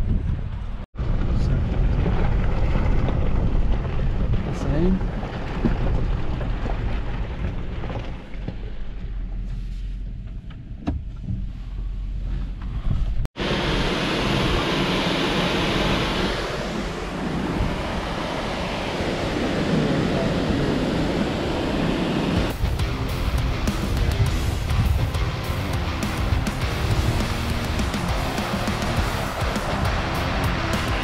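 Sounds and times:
engine and tyre rumble: 0.0s - 31.0s
loud steady rushing noise: 13.4s - 31.0s.

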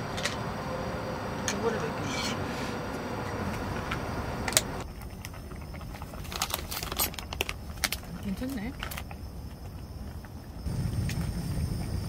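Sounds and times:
plastic bag crinkling: 5.2s - 9.2s.

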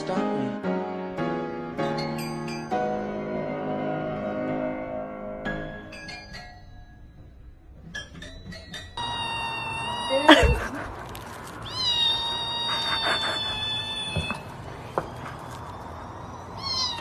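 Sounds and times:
kitten meowing: 9.0s - 14.6s, 16.3s - 17.0s.

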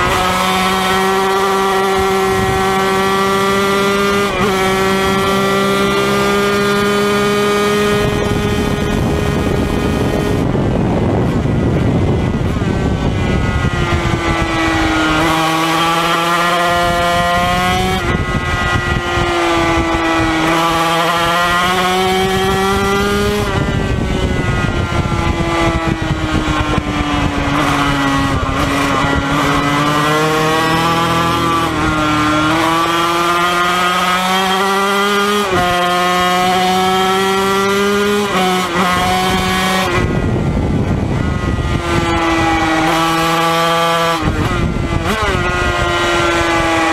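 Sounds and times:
two-stroke racing engine revving: 0.0s - 46.9s
wind rush: 0.0s - 46.9s.

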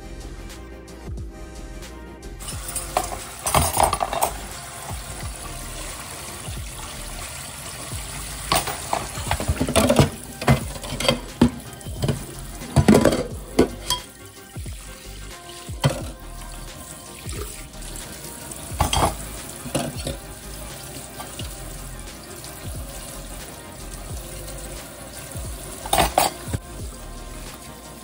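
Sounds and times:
dishes clinking in sink: 2.4s - 5.2s, 8.4s - 14.2s, 15.7s - 16.2s, 18.6s - 20.2s, 20.8s - 21.6s, 25.8s - 26.6s
faucet spray hissing on plate: 2.4s - 28.0s.

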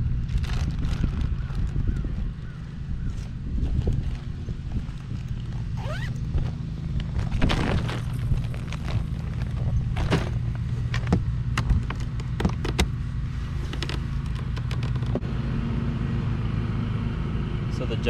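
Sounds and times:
sharp clicks and knocks: 10.0s - 13.0s, 13.6s - 15.2s.

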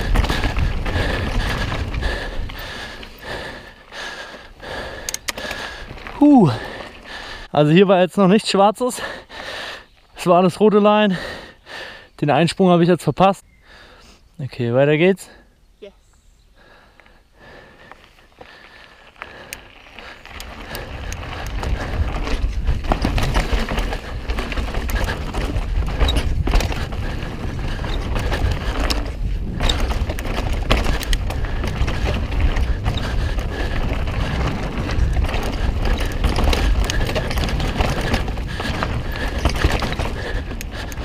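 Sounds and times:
wind rumbling on microphone: 0.0s - 7.4s, 19.2s - 41.0s
bike clicking and rattling: 0.0s - 7.8s, 16.9s - 41.0s
tyre noise on dirt: 0.0s - 7.8s, 17.6s - 41.0s.

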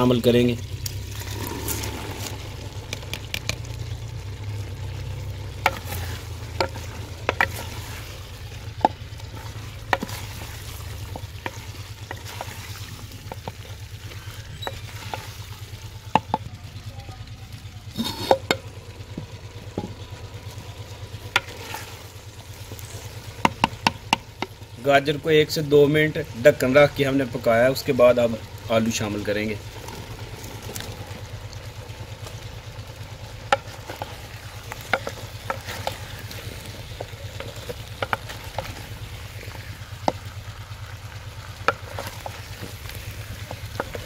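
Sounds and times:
vegetables sizzling in oil: 0.0s - 44.0s
wooden spoon knocking clay pot: 5.5s - 7.9s, 8.7s - 15.3s, 16.0s - 16.5s, 18.0s - 20.0s, 23.4s - 24.6s, 33.5s - 38.8s.

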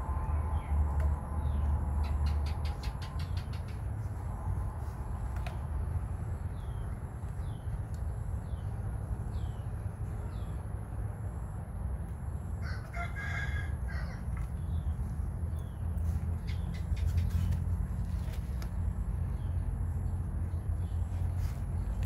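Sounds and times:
bird chirps: 15.5s - 17.7s.

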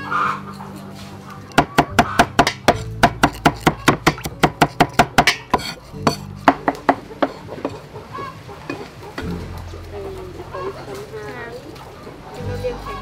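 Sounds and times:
cleaver chopping on wooden block: 1.5s - 7.0s.

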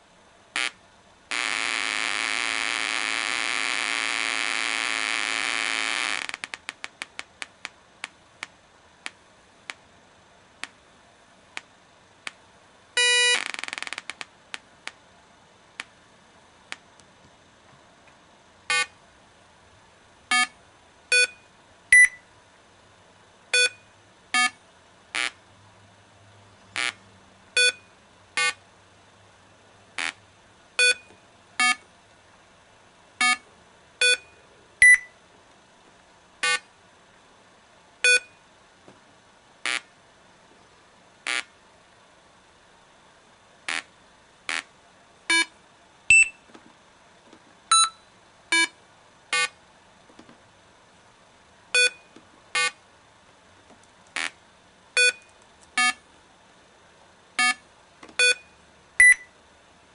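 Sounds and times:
loud electronic buzz: 0.6s - 6.8s, 13.0s - 14.2s, 41.3s - 41.5s, 43.7s - 43.9s, 44.5s - 44.7s
short electronic beeps: 13.0s - 13.4s, 21.1s - 22.2s, 23.6s - 24.6s, 27.6s - 27.8s, 30.8s - 31.8s, 34.0s - 35.1s, 38.0s - 38.4s, 46.1s - 46.5s, 47.7s - 48.7s, 51.8s - 52.8s, 55.0s - 56.0s, 58.2s - 59.3s.

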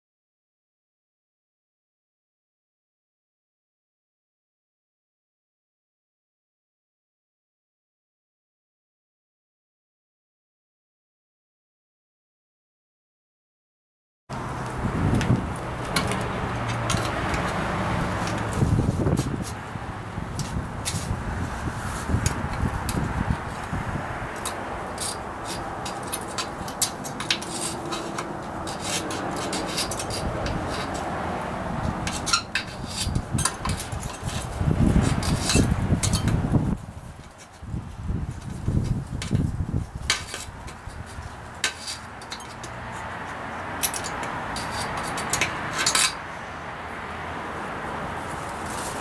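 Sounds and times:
screwdriver scraping inside metal tank: 24.4s - 31.2s, 31.9s - 36.4s, 41.1s - 42.7s, 43.8s - 46.2s.

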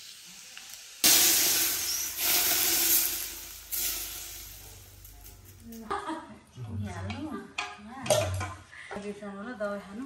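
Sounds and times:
hot oil sizzling on vegetables: 0.0s - 5.9s.

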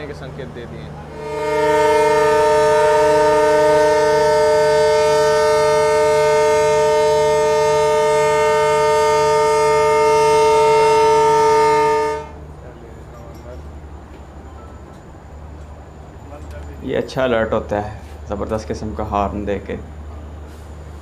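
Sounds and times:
locomotive air horn blast: 1.1s - 12.4s.

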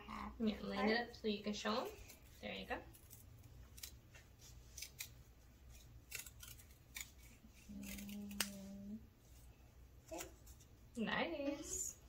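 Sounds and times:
scissors snipping paper: 2.0s - 4.0s, 4.7s - 8.9s.

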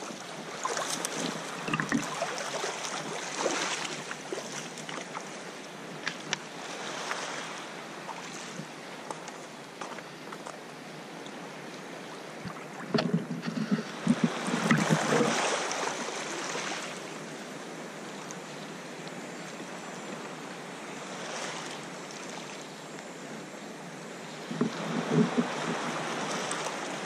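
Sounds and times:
water splashing against kayak: 0.0s - 10.0s, 12.2s - 17.2s
wind on microphone: 12.4s - 15.8s, 24.4s - 27.0s.

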